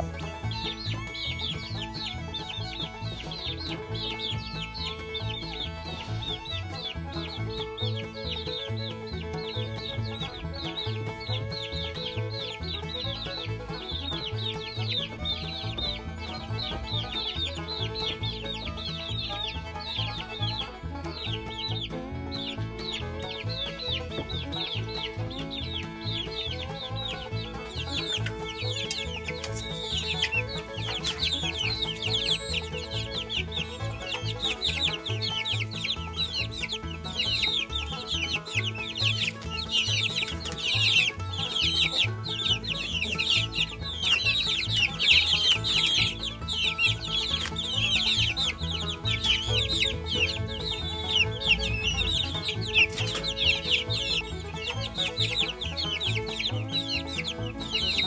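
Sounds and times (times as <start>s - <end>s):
baby chicks peeping: 0.0s - 58.0s
soft background music: 0.0s - 58.0s.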